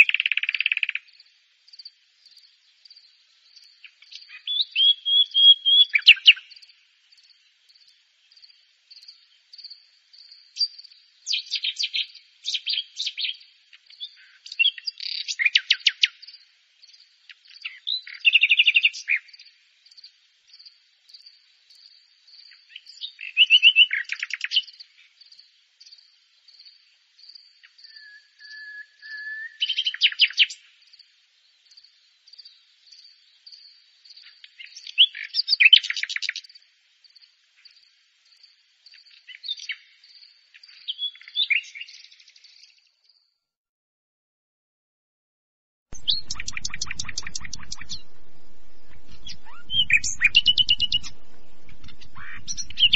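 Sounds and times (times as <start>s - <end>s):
nightingale singing: 0.0s - 1.9s, 3.6s - 7.4s, 10.3s - 16.4s, 22.4s - 25.0s, 27.3s - 30.7s, 46.0s - 52.9s
faint pulsing high note: 46.0s - 52.9s.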